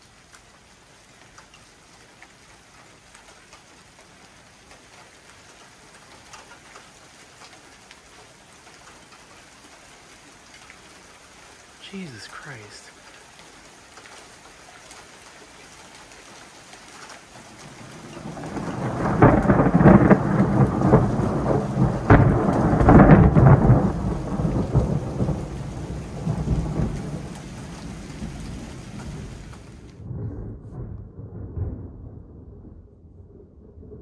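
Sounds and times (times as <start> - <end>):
steady rain: 0.0 - 30.1
thunder rumbling and cracking: 17.4 - 34.0.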